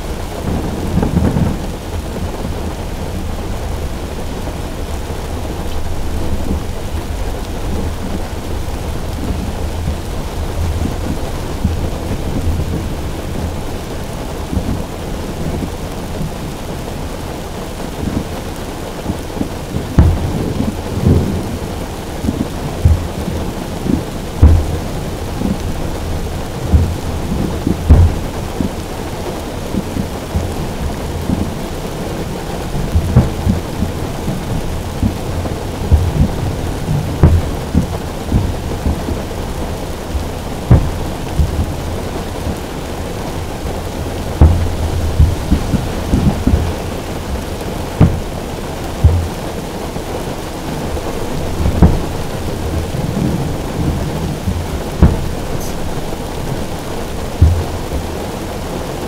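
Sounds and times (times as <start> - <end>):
heavy rain on a car roof: 0.0 - 59.0
dull thumps: 20.0 - 20.3, 24.4 - 25.7, 26.7 - 28.4, 35.9 - 39.2, 40.6 - 41.8, 43.8 - 47.1, 47.8 - 49.4, 51.3 - 57.9.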